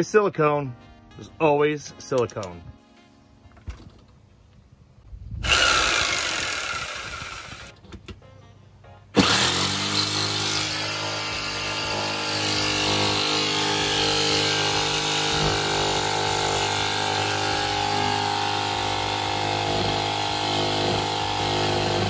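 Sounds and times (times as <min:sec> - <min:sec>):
jigsaw cutting metal: 0:05.4 - 0:07.8, 0:09.2 - 0:22.0.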